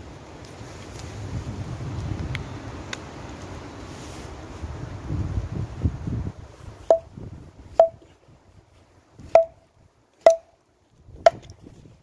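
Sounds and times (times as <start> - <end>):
hatchet chopping wood: 7.8 - 8.1, 9.3 - 9.6, 10.2 - 10.5, 11.3 - 11.5.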